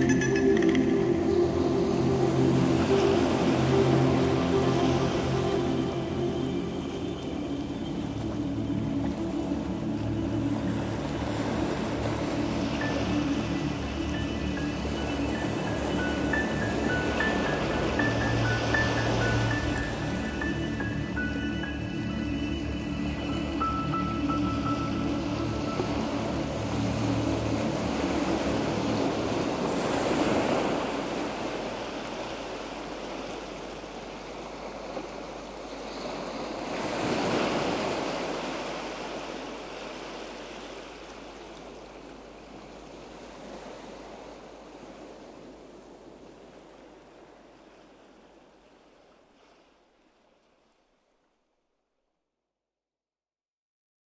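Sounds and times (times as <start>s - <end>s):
background music: 0.0s - 32.2s
rushing surf-like noise: 0.0s - 41.4s.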